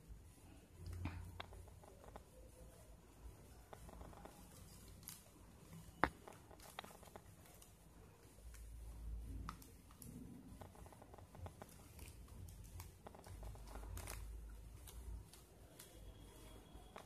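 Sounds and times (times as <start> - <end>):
plastic strips clicking and rustling: 3.6 - 17.0.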